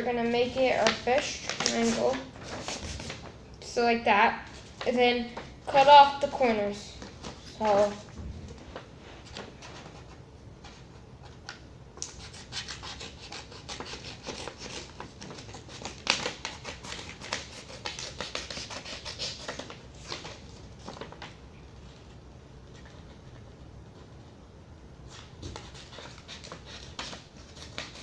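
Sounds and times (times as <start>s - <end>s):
paper rustling and crackling: 0.5s - 3.3s.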